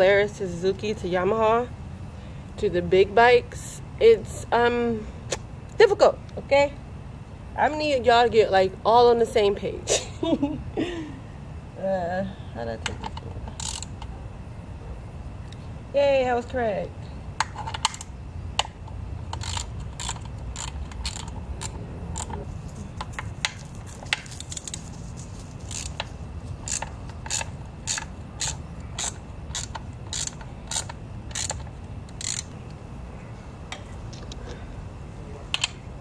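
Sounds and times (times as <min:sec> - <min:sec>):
socket ratchet clicking: 0:13.5 - 0:14.0, 0:17.4 - 0:22.4, 0:25.6 - 0:32.6.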